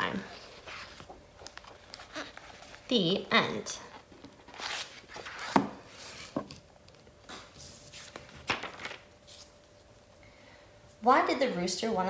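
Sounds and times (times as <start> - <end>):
paper rustling: 0.1 - 3.2, 3.9 - 6.4, 7.3 - 9.9.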